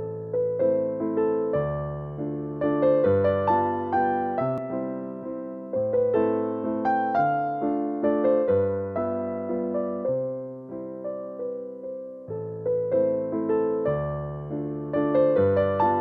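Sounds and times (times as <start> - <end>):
gentle keyboard melody: 0.0 - 16.0.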